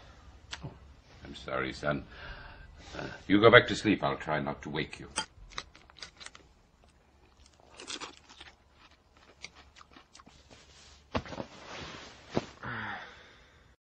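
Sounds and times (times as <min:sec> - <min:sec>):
rustling handling noise: 0:10.2 - 0:12.6.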